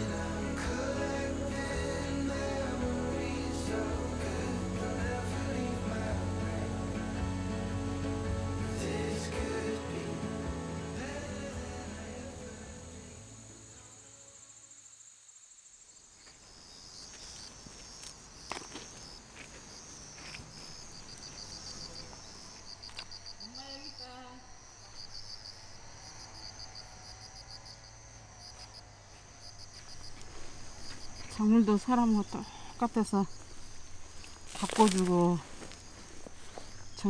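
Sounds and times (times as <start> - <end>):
background music: 0.0 - 14.6
crickets chirping: 0.0 - 37.0.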